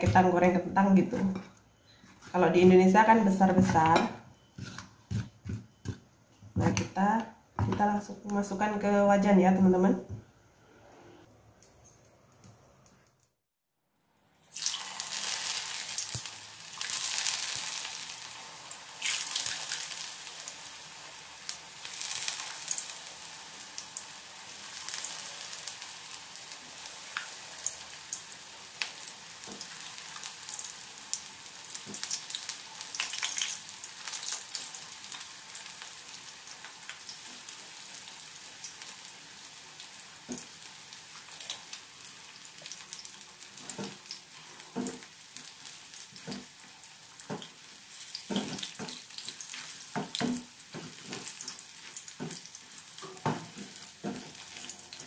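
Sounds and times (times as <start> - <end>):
deep-frying sizzle in hot oil: 14.4 - 55.0.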